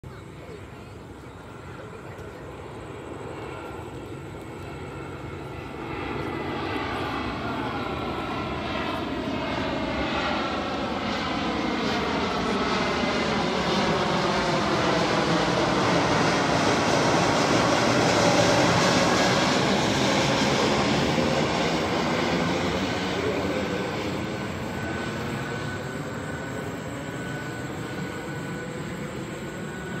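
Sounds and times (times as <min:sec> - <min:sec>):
jet airliner flying over: 0:00.0 - 0:30.0.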